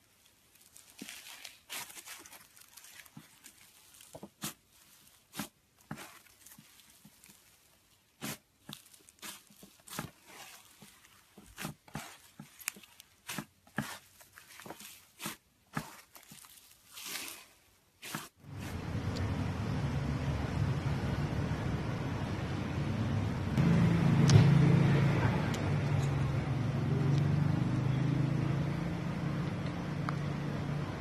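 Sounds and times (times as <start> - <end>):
slime crackling and popping: 0.3 - 7.6, 8.2 - 18.3
steady low rumble: 18.5 - 31.0.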